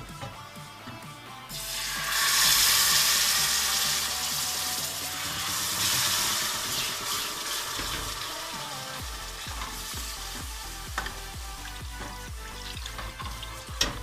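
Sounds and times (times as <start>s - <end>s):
roux sizzling loudly: 1.5s - 14.0s
spatula stirring: 5.8s - 14.0s.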